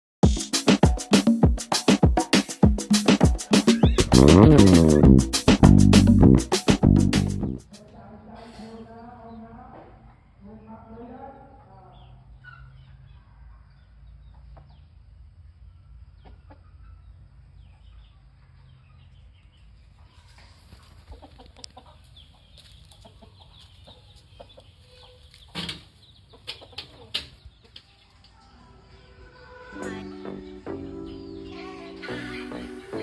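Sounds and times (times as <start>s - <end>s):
rooster clucking softly: 20.0s - 25.4s.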